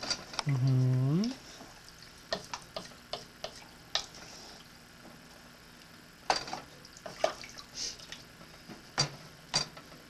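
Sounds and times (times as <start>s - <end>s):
liquid sloshing in a pot: 6.7s - 8.4s.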